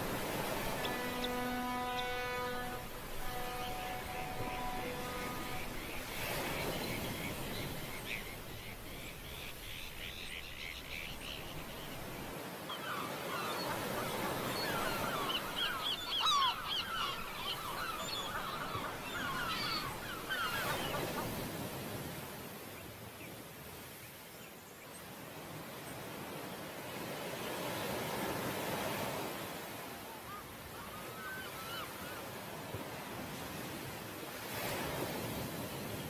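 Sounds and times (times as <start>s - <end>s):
surf: 0.0s - 23.0s
wind: 0.0s - 36.0s
birds squawking and chirping: 0.2s - 21.7s.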